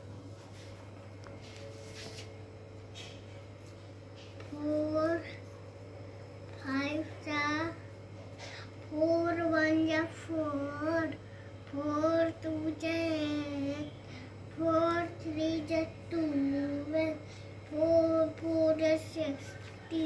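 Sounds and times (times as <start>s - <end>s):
child chanting sing-song: 6.6s - 7.8s, 8.8s - 20.0s.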